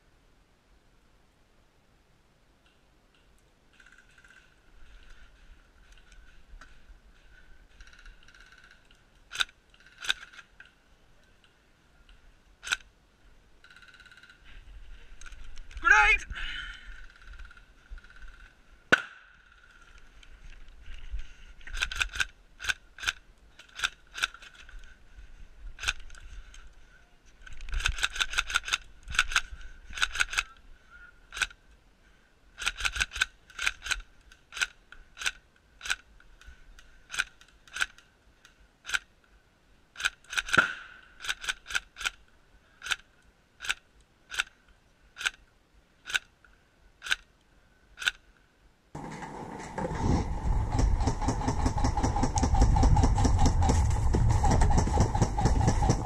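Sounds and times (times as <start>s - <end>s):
airsoft gun shots: 18.9s - 19.3s, 40.5s - 41.0s.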